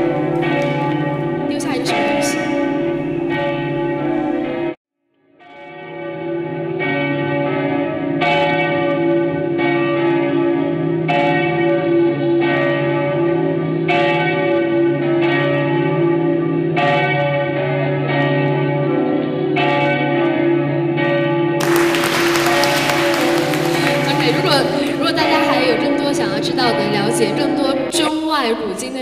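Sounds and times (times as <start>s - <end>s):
bells ringing: 0.0s - 4.8s, 5.6s - 29.0s
noisy large room: 21.6s - 29.0s.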